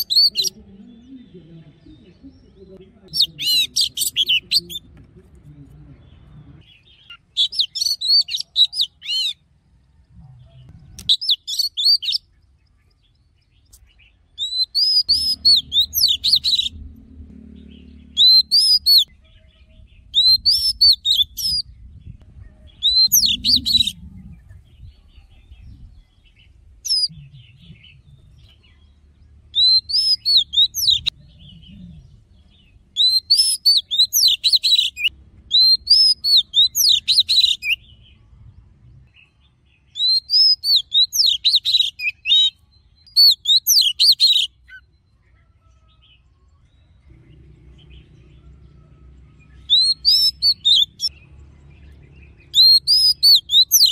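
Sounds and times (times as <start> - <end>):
bird singing whistled phrases: 0.0 - 0.5, 7.1 - 9.4, 11.0 - 12.2, 14.4 - 16.7, 18.2 - 21.7, 22.8 - 24.6, 26.9 - 27.7, 29.6 - 31.6, 33.0 - 37.9, 39.9 - 44.9, 49.4 - 51.1, 52.4 - 53.9.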